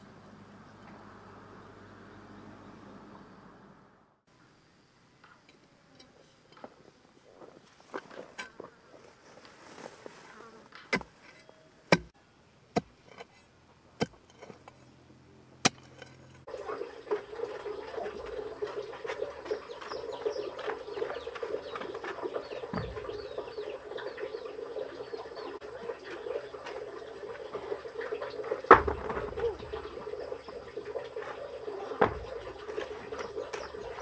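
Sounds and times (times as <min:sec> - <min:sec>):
hoe chopping into dry dirt: 0:11.9 - 0:12.1, 0:15.6 - 0:16.2
insects buzzing and chirping: 0:16.5 - 0:34.0.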